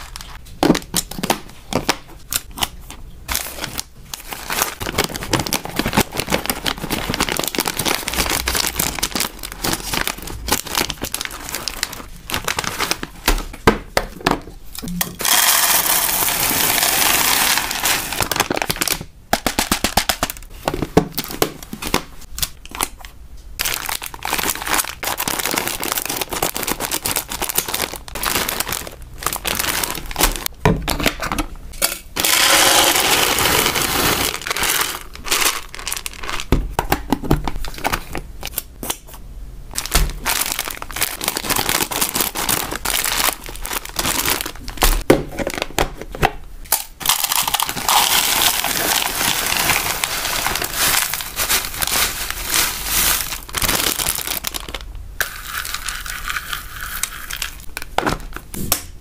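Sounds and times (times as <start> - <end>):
snack packaging crinkling: 0.0 - 13.2, 15.2 - 20.5, 23.6 - 30.5, 32.2 - 39.0, 39.7 - 45.8, 46.7 - 58.0
dry treats rattling: 15.2 - 18.8, 32.2 - 36.5, 46.7 - 57.7.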